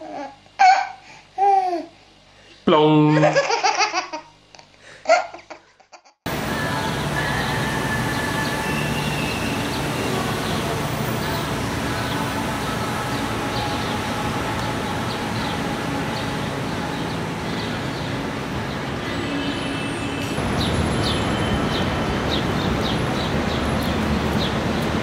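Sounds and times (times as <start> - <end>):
traffic roar: 6.3 - 25.0.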